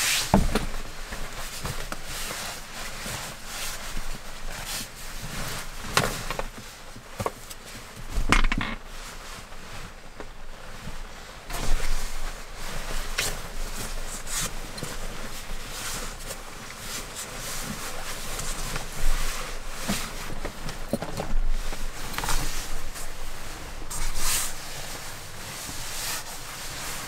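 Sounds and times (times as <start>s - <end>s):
sleeping bag rustling: 0.0s - 27.0s
knocks and creaks on wood: 0.3s - 0.8s, 8.1s - 8.9s, 19.8s - 22.5s.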